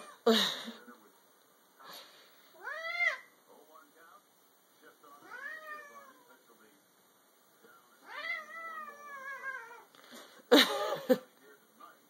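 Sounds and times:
cat meowing: 2.6s - 3.3s, 5.2s - 6.3s, 8.0s - 9.9s.

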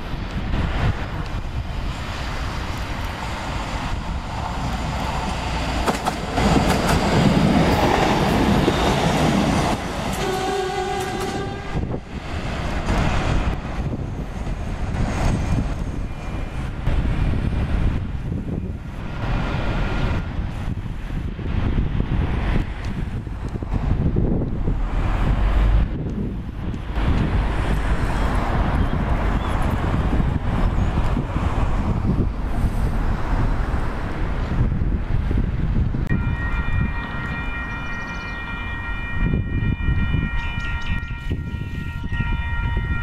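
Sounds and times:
railcar rumbling past: 0.0s - 43.0s
train horn blast: 10.1s - 12.0s, 36.1s - 43.0s.

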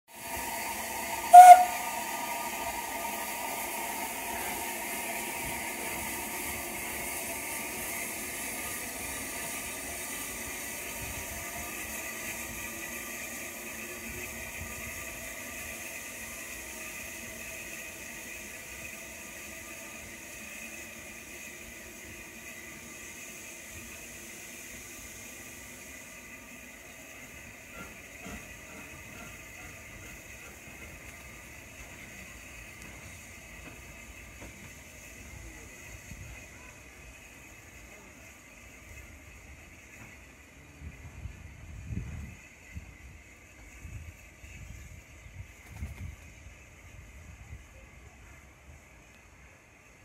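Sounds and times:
locomotive steam hissing: 0.1s - 50.0s
steam whistle toot: 0.3s - 3.7s.

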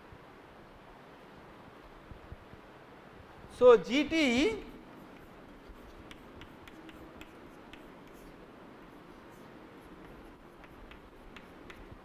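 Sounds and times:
low hiss: 0.0s - 12.0s
chalk tapping on chalkboard: 5.0s - 12.0s.

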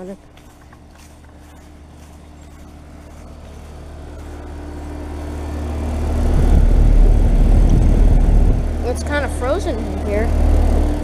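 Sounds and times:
heat pump fan and compressor hum: 0.0s - 11.0s
air buffeting microphone: 5.8s - 11.0s.

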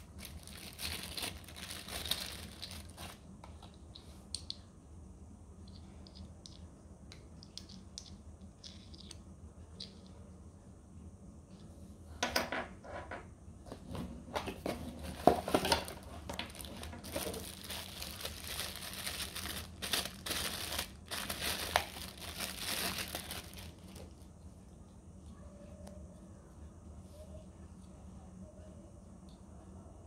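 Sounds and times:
plastic bags crinkling: 0.0s - 3.2s, 15.1s - 24.2s.

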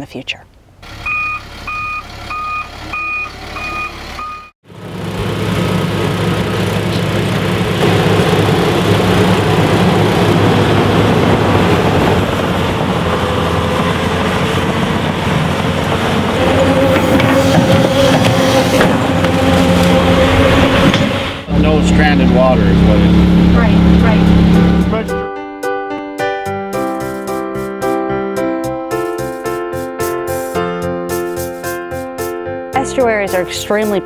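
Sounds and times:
diesel engines running under load: 0.8s - 25.2s
backup alarm beeping: 1.0s - 4.5s.

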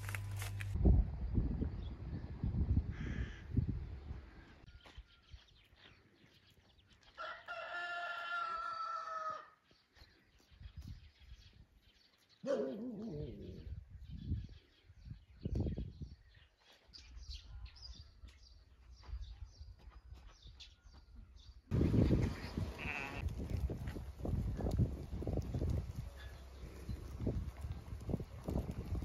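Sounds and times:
rooster crowing: 7.2s - 9.6s.

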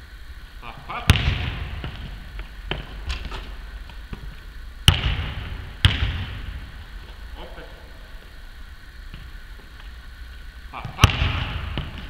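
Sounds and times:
basketball bouncing on hardwood: 1.1s - 3.4s, 4.1s - 6.7s.

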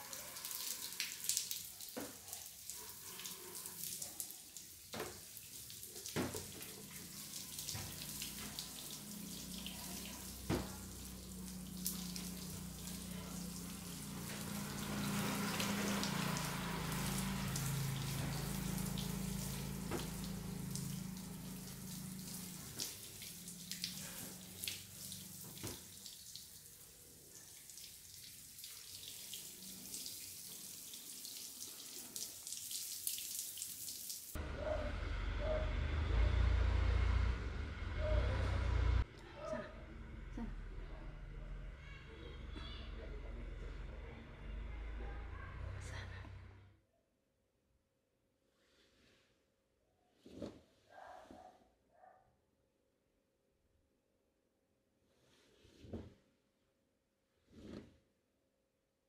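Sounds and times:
water dripping and splashing: 0.0s - 34.4s
low hum: 34.4s - 46.7s.

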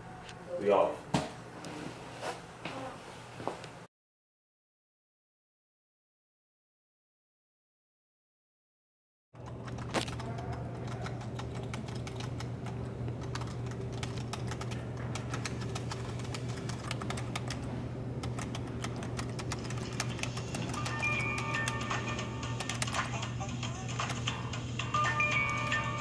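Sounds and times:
steady low hum: 9.4s - 26.0s
smartphone ringtone: 20.7s - 26.0s.

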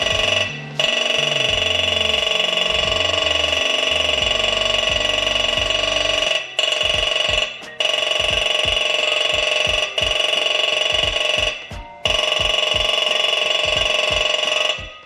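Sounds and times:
low note changing pitch in steps: 0.0s - 6.3s.

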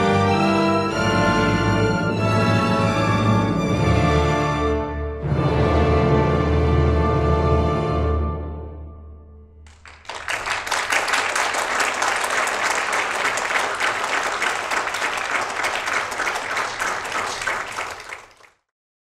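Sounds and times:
audience applauding: 9.7s - 18.6s.

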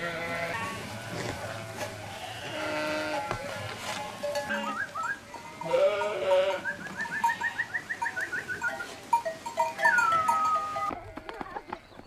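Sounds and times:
sheep bleating: 0.0s - 7.9s.

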